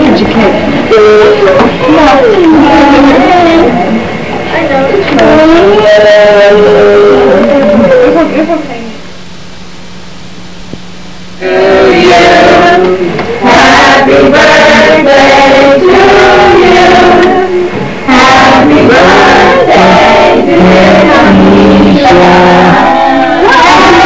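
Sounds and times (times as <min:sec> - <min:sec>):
steady low hum: 0:00.0 - 0:24.0
group of people singing: 0:11.4 - 0:24.0.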